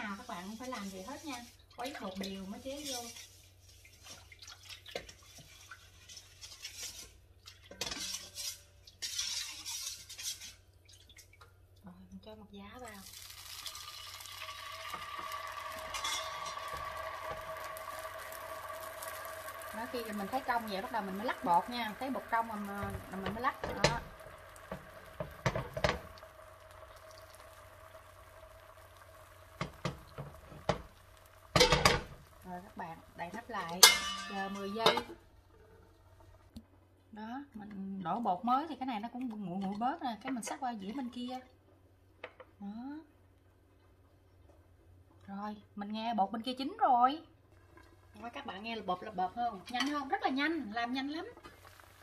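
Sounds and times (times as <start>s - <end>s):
batter sizzling in a pan: 0.0s - 10.8s, 12.8s - 36.5s, 46.3s - 52.0s
utensil stirring batter in bowl: 0.0s - 11.4s.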